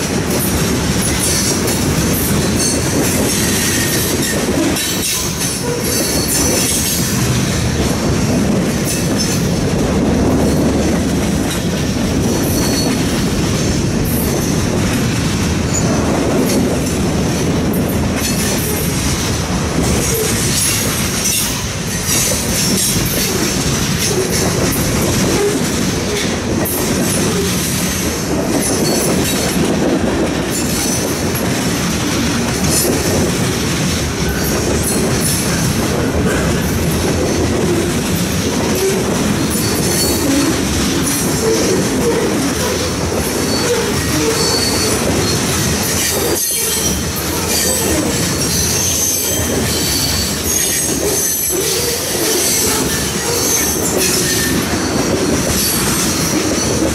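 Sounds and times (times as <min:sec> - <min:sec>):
steel wheels rumbling on rail: 0:00.0 - 0:56.9
high wheel squeal: 0:02.5 - 0:07.2, 0:12.4 - 0:13.2, 0:38.8 - 0:56.8.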